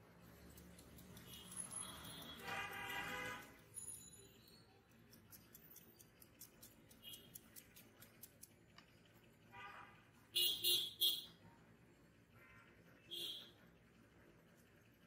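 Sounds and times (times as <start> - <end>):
high-pitched street sounds: 0.0 - 7.4.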